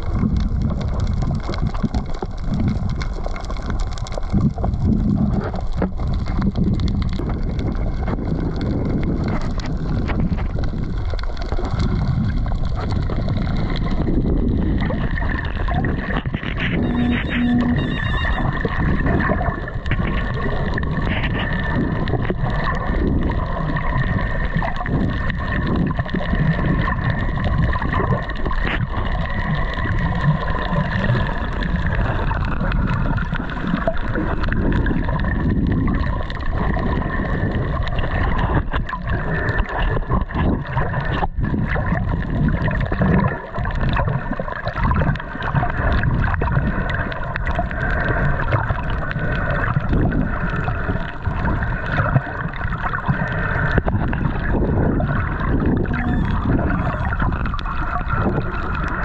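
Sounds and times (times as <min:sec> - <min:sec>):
rushing gurgling water: 0:00.0 - 0:59.0
motorboat engine whine: 0:16.6 - 0:18.8.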